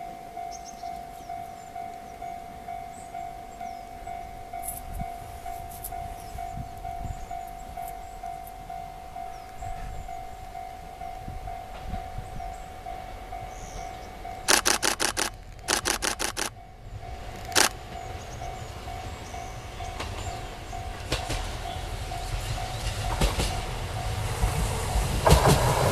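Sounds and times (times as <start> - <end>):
level crossing warning bell ringing: 0.0 - 25.1
bird chirps: 0.4 - 4.8, 5.8 - 10.7, 12.2 - 21.0.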